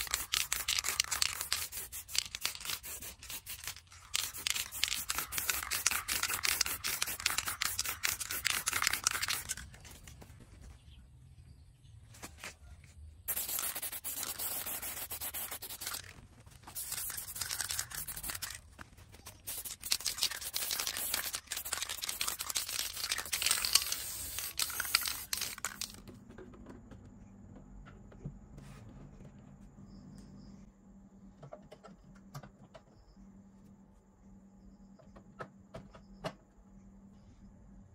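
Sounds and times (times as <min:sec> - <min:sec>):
spray paint can hissing: 0:00.0 - 0:10.0, 0:13.3 - 0:26.0.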